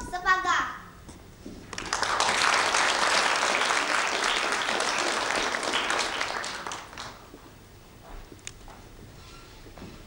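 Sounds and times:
audience applauding: 1.7 - 7.4.

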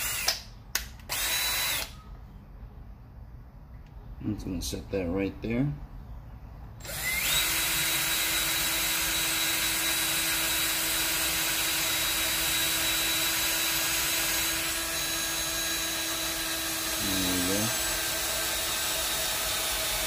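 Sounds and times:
power drill boring: 0.0 - 0.4, 1.1 - 2.0, 6.8 - 20.0.

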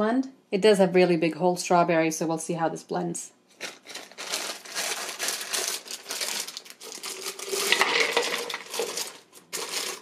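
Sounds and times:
plastic bag crinkling: 3.5 - 10.0
frozen fruit clattering into cup: 3.6 - 10.0.

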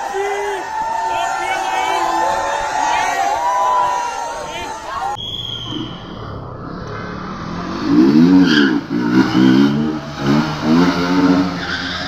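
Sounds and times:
motorcycle engine revving: 6.0 - 12.0.

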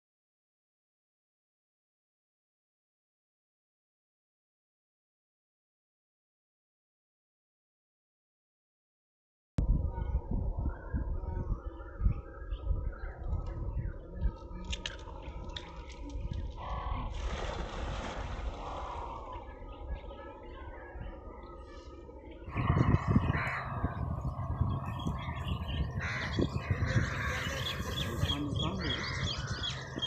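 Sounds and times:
net splashing into water: 17.1 - 18.8
low uneven rumble: 18.1 - 30.0.

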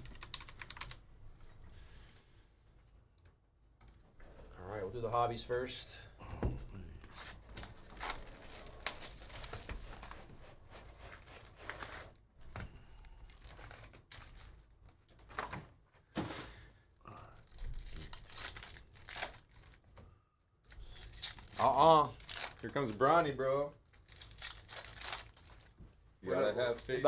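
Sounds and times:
cardboard and foil tearing: 7.1 - 10.2, 11.0 - 12.2, 17.4 - 19.9, 20.7 - 25.7, 26.3 - 27.0.

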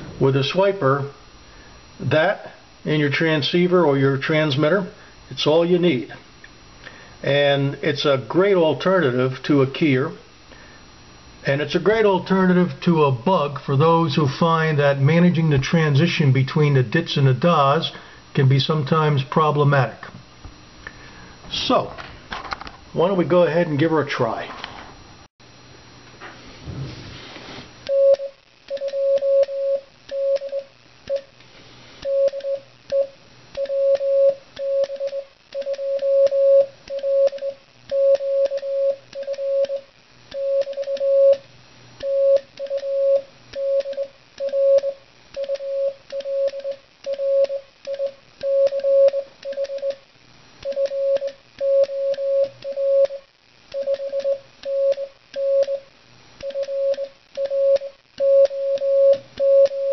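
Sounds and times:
morse code sidetone beeping: 40.4 - 41.4, 42.0 - 50.0, 50.6 - 53.2, 53.8 - 55.8, 56.4 - 59.9.

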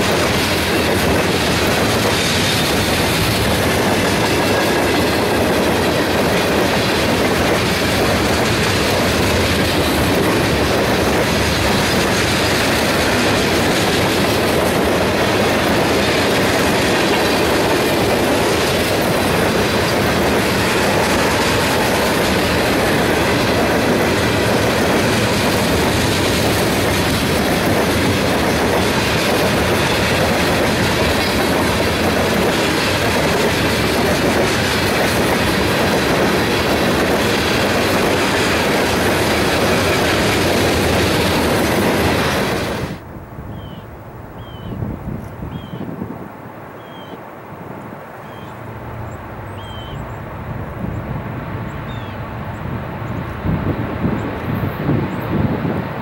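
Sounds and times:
train wheels clacking on track: 0.0 - 43.0.

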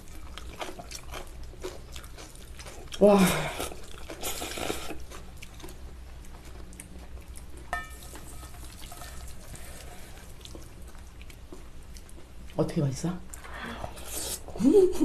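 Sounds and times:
chewing: 0.0 - 12.6
chopsticks in metal bowls: 7.8 - 10.2.

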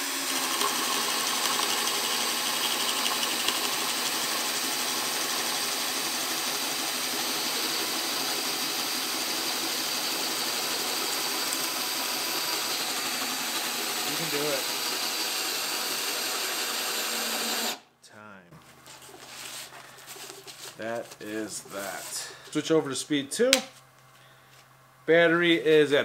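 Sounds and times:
cordless drill boring into wood: 0.0 - 17.8.

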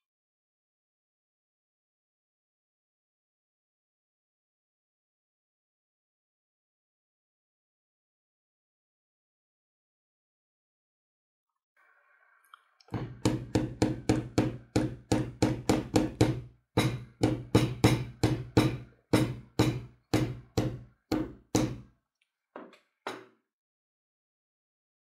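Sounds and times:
hammer knocking on metal shaft: 13.0 - 21.8.

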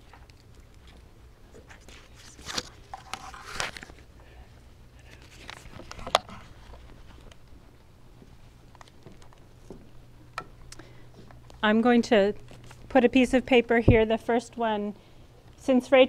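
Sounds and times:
paper and clothing rustling: 1.7 - 4.1.

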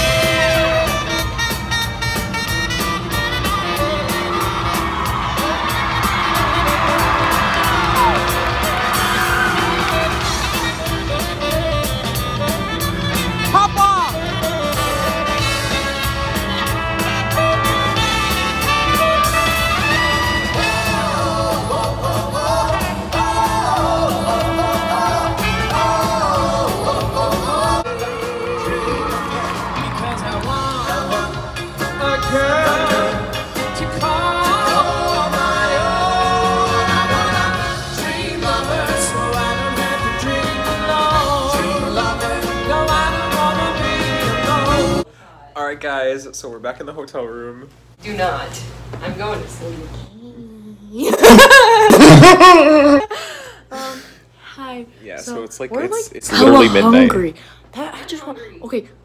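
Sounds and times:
drum beat: 0.0 - 27.7
live band playing: 0.0 - 45.1, 56.3 - 57.3
men singing together: 20.7 - 45.0.

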